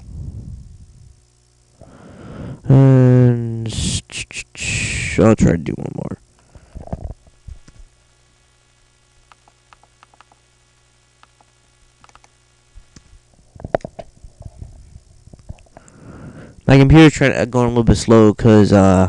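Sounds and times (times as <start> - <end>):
faint electrical hum: 0.0 - 19.0
mouse clicks: 9.3 - 10.4, 11.2 - 13.0
soft clicks: 9.3 - 10.4, 11.2 - 13.1.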